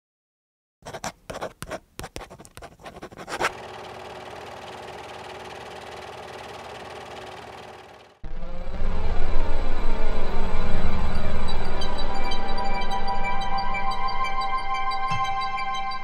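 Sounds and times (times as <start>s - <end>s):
pen scratching on paper: 0.8s - 3.6s
steady whir: 3.4s - 11.2s.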